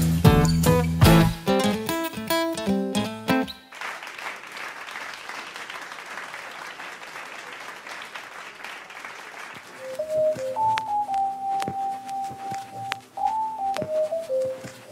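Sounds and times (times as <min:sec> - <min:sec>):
audience applause: 0:03.7 - 0:10.9
band playing: 0:09.8 - 0:14.8.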